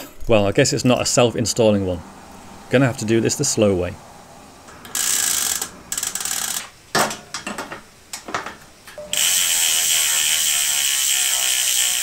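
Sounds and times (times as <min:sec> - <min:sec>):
bicycle freehub ratchet buzzing: 0:04.8 - 0:06.8, 0:09.1 - 0:12.0.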